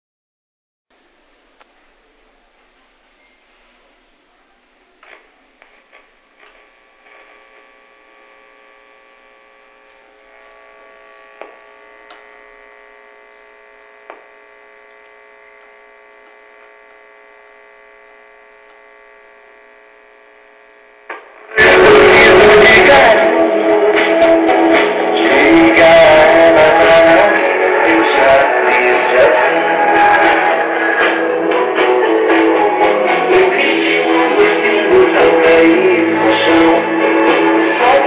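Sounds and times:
radio humming through loudspeaker: 0.9 - 38.0
radio station playing: 1.1 - 38.0
radio knobs and buttons clicking: 5.0 - 7.2, 11.3 - 12.5, 21.0 - 21.4.

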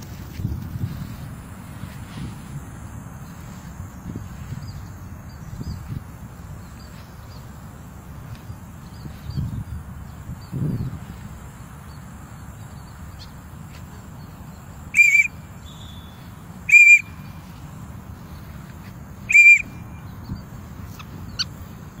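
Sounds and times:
steady background hiss: 0.0 - 22.0
short high whistle notes: 16.7 - 17.1, 19.3 - 19.7.

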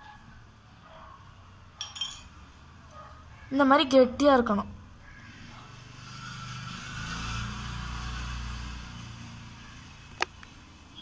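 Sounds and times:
vehicle passing by: 4.0 - 11.0.

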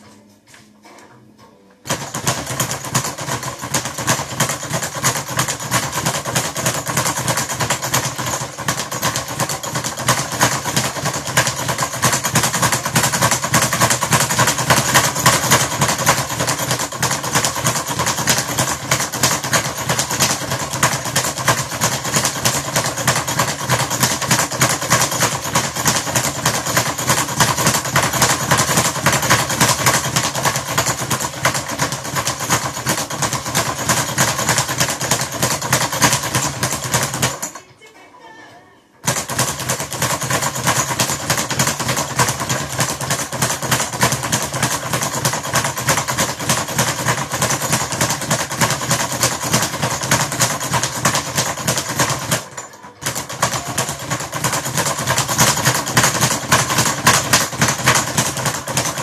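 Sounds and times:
speed bag rattling: 1.8 - 37.8, 39.0 - 59.0.

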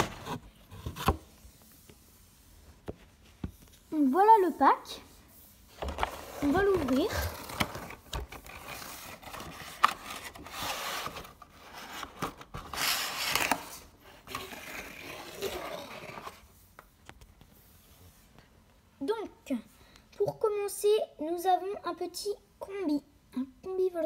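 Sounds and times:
packaging rubbing and scraping: 5.7 - 16.5.

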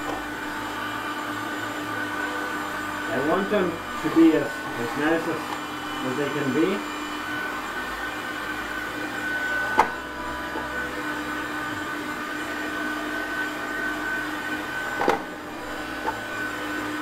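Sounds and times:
heat gun fan whining: 0.0 - 17.0.

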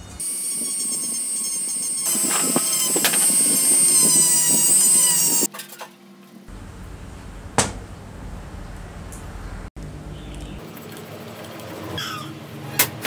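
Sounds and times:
rotary tool high whine: 0.1 - 5.5.

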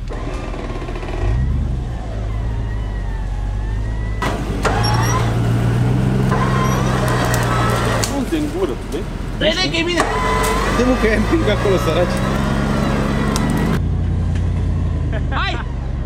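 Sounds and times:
suv engine under load: 0.0 - 16.0.

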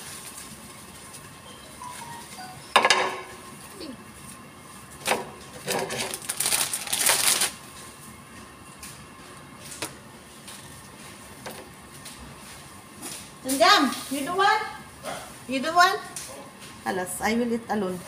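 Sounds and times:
dry rustle of bread: 0.0 - 2.4, 5.6 - 8.1.

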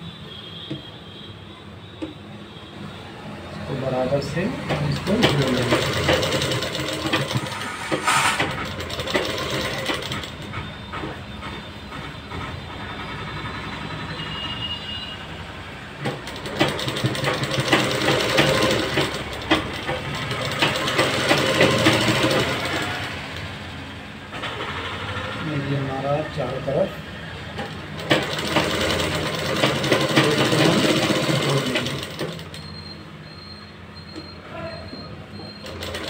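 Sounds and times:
sewing machine stitching: 4.2 - 10.5, 16.0 - 23.5, 27.5 - 32.6, 35.6 - 36.0.

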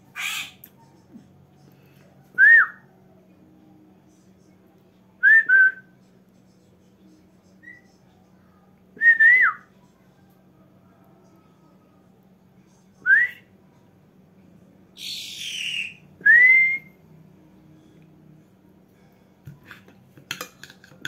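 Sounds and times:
woman whistling: 2.4 - 2.8, 16.2 - 16.9.

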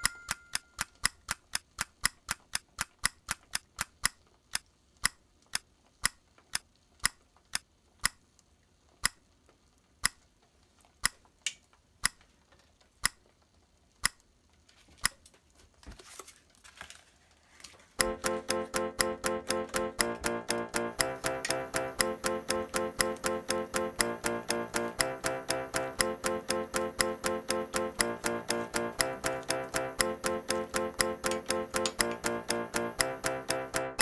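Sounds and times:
clock-like ticking: 0.0 - 8.2, 9.0 - 9.2, 10.0 - 10.3, 11.0 - 11.2, 12.0 - 12.2, 13.0 - 13.3, 14.0 - 14.2, 18.0 - 34.0.

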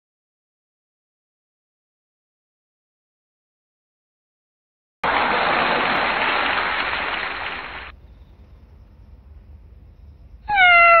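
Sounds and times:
cat meowing: 10.5 - 11.0.

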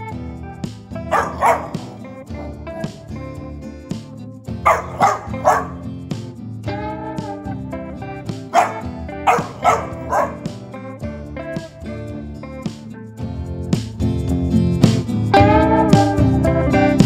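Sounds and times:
background music: 0.0 - 17.0
puppy yapping: 1.1 - 2.6, 4.7 - 5.8, 8.5 - 10.5.

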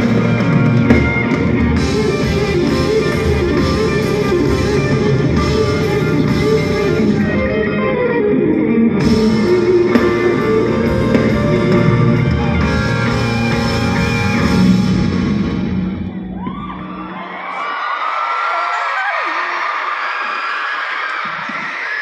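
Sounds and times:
electric guitar: 0.0 - 17.0
live band over sound system: 0.0 - 22.0.

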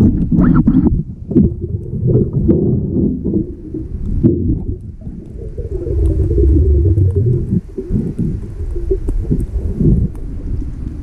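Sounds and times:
underwater rumble and bubbling: 0.0 - 11.0.

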